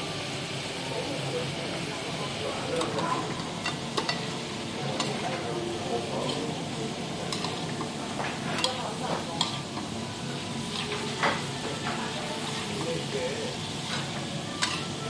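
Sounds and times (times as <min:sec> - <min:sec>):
vegetables sizzling in a pan: 0:00.0 - 0:15.0
metal spoons scraping a pan: 0:06.1 - 0:15.0.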